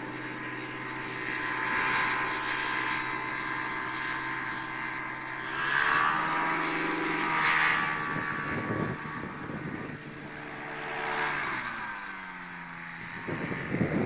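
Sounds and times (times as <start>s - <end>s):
microlight engine and propeller: 0.0s - 14.0s
wind buffeting microphone: 5.9s - 11.9s, 12.6s - 14.0s.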